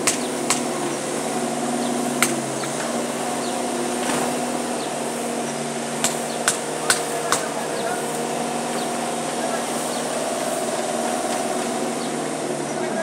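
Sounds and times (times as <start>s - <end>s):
diesel engine running: 0.0s - 13.0s
sharp knocks: 6.0s - 7.6s.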